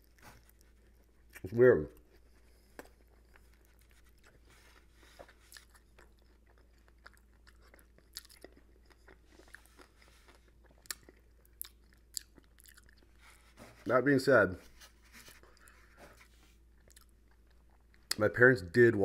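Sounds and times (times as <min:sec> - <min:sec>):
person eating with wet smacks: 0:02.0 - 0:13.2, 0:16.8 - 0:18.2.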